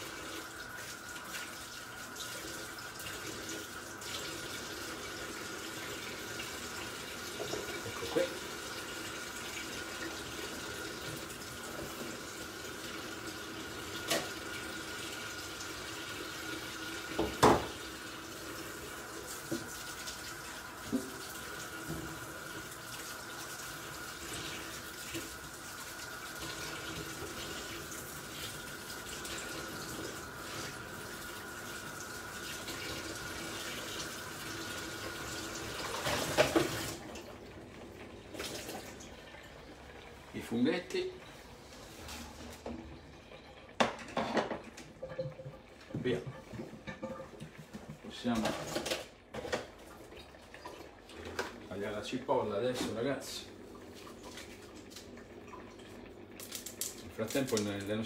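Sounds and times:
tap running into a sink: 0:07.3 - 0:08.4, 0:17.0 - 0:17.9, 0:19.4 - 0:20.0, 0:20.8 - 0:22.3, 0:34.8 - 0:37.0.

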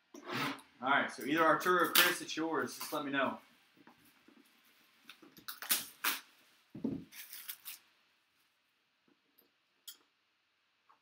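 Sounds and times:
plastic shrink wrap crinkling: 0:04.0 - 0:08.4.

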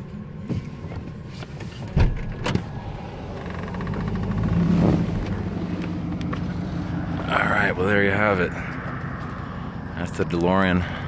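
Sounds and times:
low vehicle hum: 0:00.0 - 0:11.0
car door clunk: 0:01.5 - 0:02.8.

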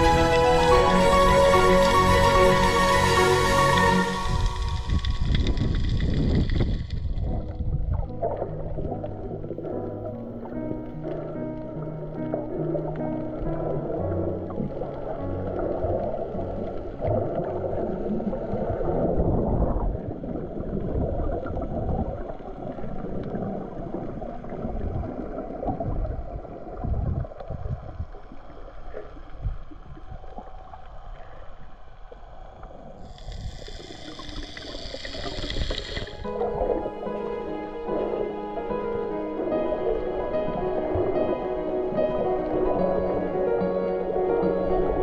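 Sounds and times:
underwater swishing and gurgling: 0:03.4 - 0:45.0
high hiss: 0:33.0 - 0:36.2.

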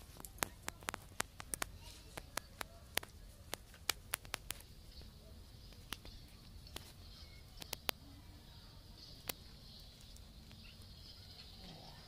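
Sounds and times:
dry sticks and leaves crackling: 0:00.0 - 0:05.1, 0:05.7 - 0:07.0.

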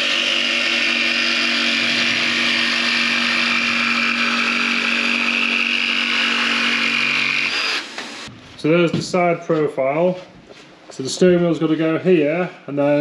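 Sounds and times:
jigsaw cutting wood: 0:00.0 - 0:08.3.

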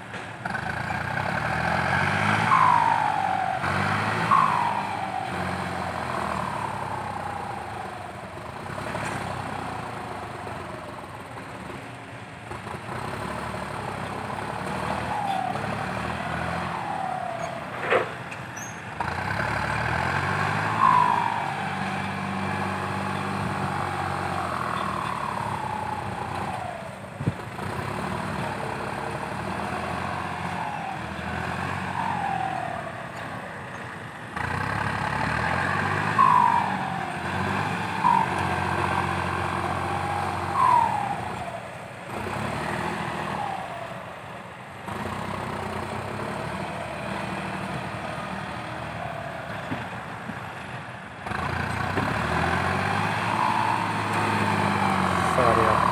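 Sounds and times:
excavator diesel engine running: 0:00.0 - 0:55.9
brief falling whines: 0:38.0 - 0:41.7.

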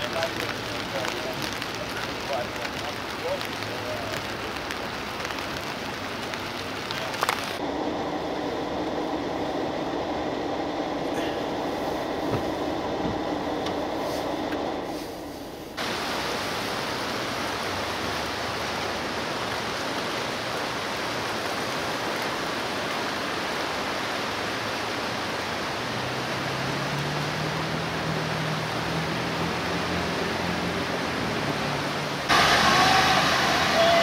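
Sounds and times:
vehicle driving through floodwater: 0:00.0 - 0:14.2, 0:15.8 - 0:34.0
fast-flowing river rushing: 0:15.8 - 0:34.0.

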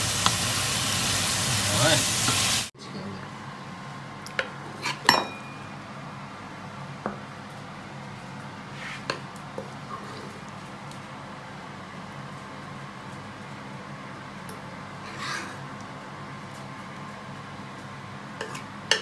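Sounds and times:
metal ladle clinking on wok: 0:05.1 - 0:05.7.

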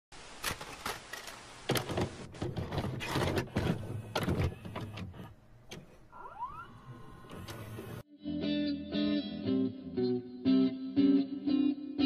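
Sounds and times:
tape mechanism clicks and clunks: 0:00.4 - 0:06.0.

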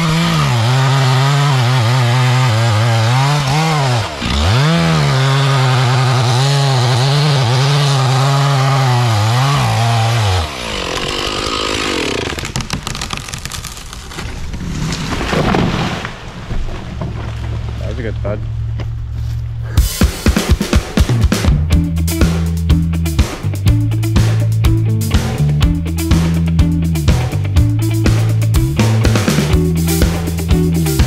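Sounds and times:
chainsaw cutting wood: 0:00.0 - 0:14.3
wood cracking: 0:00.0 - 0:19.2
tree falling with crash: 0:09.4 - 0:17.8.

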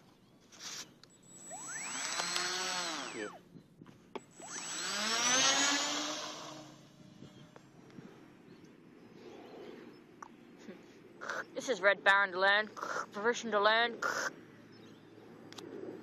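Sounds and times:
electric motor and propeller whining: 0:00.4 - 0:08.1.

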